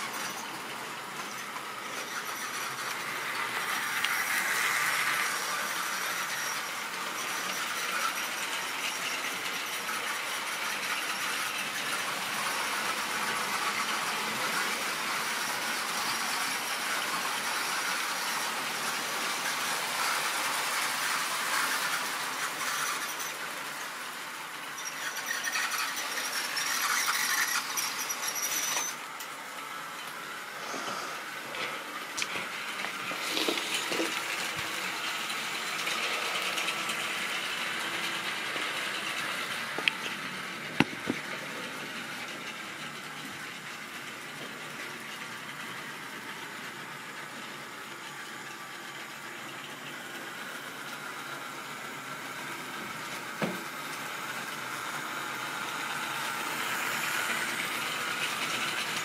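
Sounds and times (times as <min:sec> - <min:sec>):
high wheel squeal: 0:00.0 - 0:20.3, 0:21.5 - 0:23.9, 0:24.6 - 0:29.1
model train wheels rattling: 0:00.0 - 0:59.0.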